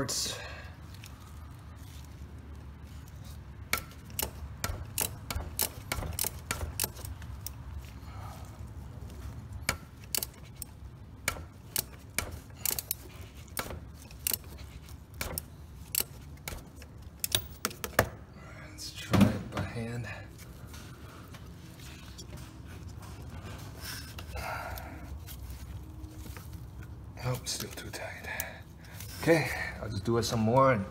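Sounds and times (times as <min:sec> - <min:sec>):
ratchet clicking: 0:03.7 - 0:07.6, 0:09.7 - 0:17.9.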